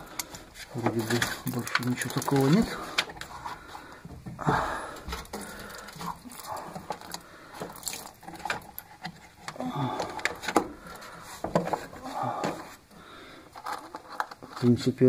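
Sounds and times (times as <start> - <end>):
hands clicking and knocking on hose: 4.0 - 12.7.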